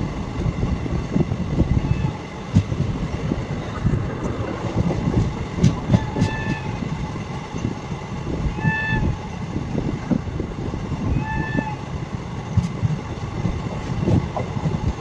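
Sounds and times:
train wheels rumbling on rail: 0.0s - 15.0s
knocks and clicks: 3.9s - 6.8s
train horn toots: 5.9s - 7.0s, 8.4s - 9.3s, 11.1s - 11.9s.

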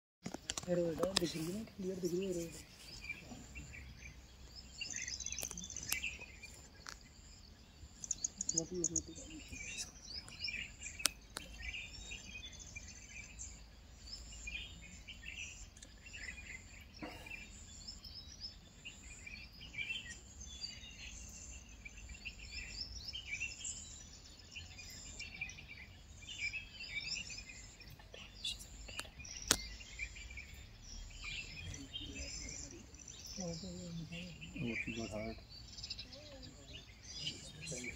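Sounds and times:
birds chirping and calling: 0.3s - 37.9s
sharp click: 28.9s - 29.7s.

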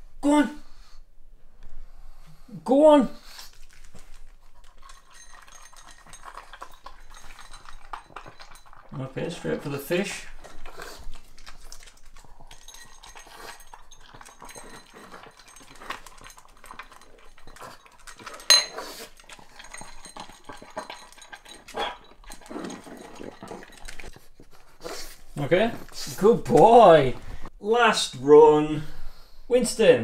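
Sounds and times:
dog crunching dry kibble: 3.2s - 27.0s
ceramic bowl clinking: 4.8s - 9.0s, 12.5s - 24.0s.

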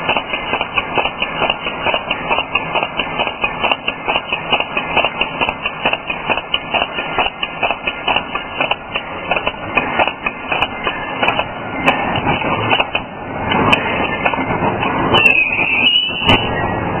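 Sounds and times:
machine metallic clatter: 0.0s - 17.0s
high-pitched squeal: 13.4s - 17.0s.

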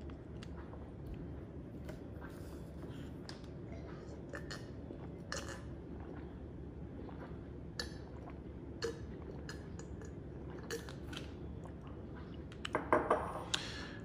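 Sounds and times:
person gulping water: 0.0s - 13.7s
low background hum: 0.0s - 14.0s.

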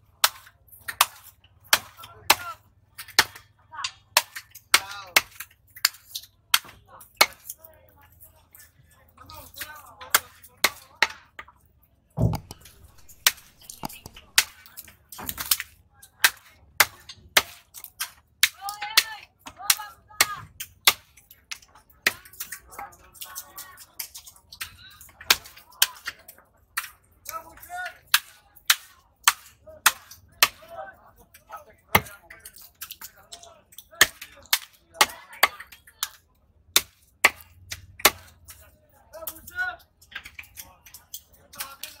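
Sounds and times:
knife chopping on wooden block: 12.2s - 14.5s.

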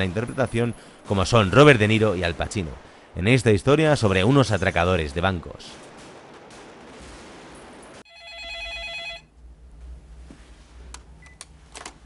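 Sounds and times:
electronic telephone ring: 8.1s - 9.3s.

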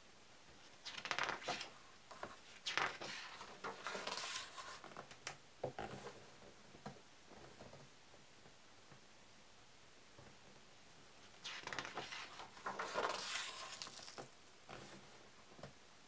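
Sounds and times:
book page rustling: 0.9s - 4.8s, 11.4s - 15.0s.

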